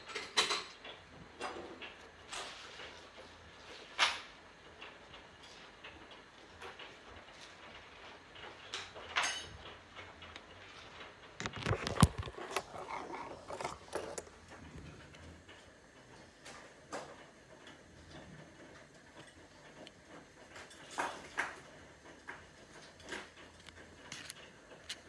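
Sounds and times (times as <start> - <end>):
clicks and rattles: 0.0 - 25.0.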